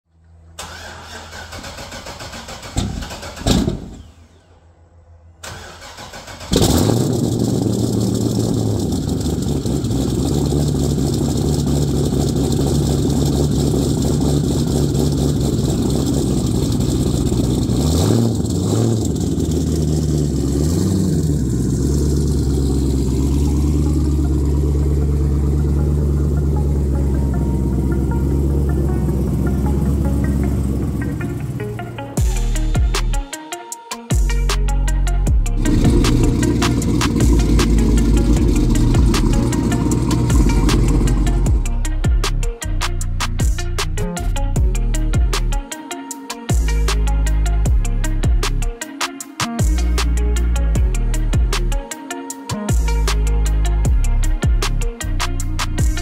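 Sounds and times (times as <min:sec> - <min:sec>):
car engine starting and idling: 0:00.2 - 0:04.6, 0:05.4 - 0:33.2, 0:34.4 - 0:45.6
engine revving: 0:05.5 - 0:32.7, 0:35.4 - 0:42.7.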